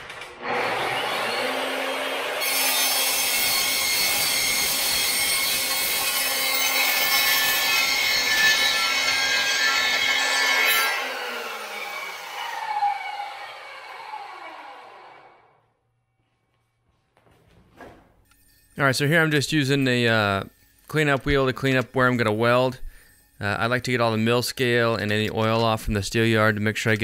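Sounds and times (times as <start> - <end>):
chop saw cutting steel: 0.0 - 15.3
saw motor winding down: 0.0 - 15.6.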